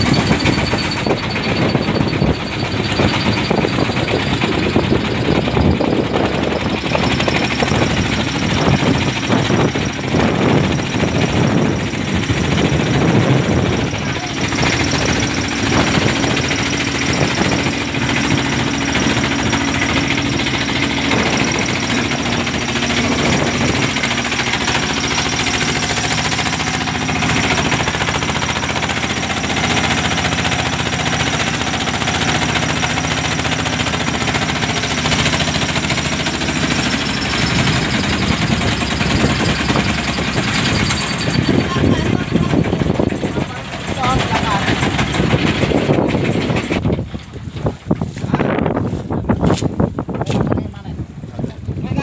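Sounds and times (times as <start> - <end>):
wind rushing: 0.0 - 30.9
boat engine chugging: 0.0 - 52.0
choppy sea: 0.0 - 52.0.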